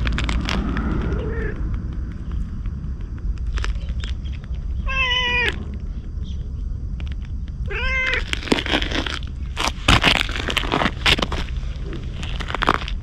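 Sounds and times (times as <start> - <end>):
crackling scuffs: 0.0 - 13.0
low rumble: 0.0 - 13.0
cat meowing: 1.1 - 1.6, 4.8 - 5.6, 7.7 - 8.3.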